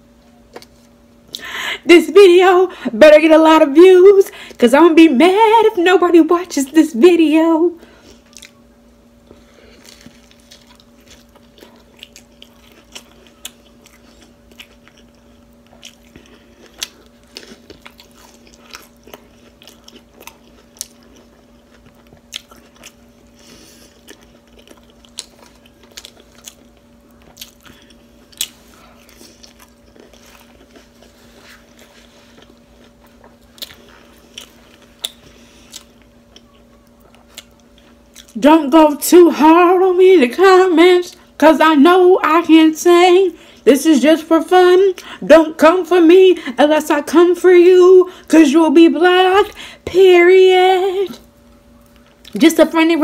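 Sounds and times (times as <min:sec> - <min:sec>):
close-up eating and chewing: 0:00.3 - 0:01.5, 0:07.8 - 0:41.5, 0:51.0 - 0:52.6.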